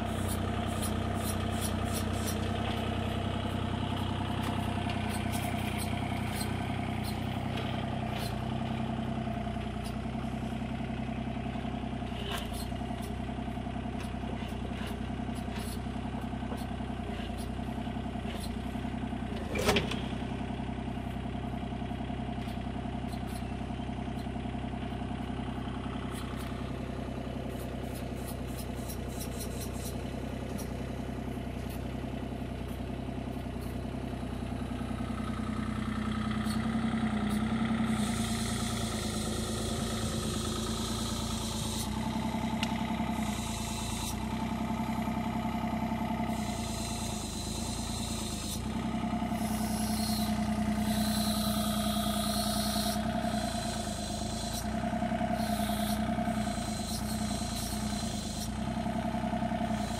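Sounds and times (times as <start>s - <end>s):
excavator diesel engine: 0.0s - 59.9s
hydraulic hiss: 37.9s - 59.9s.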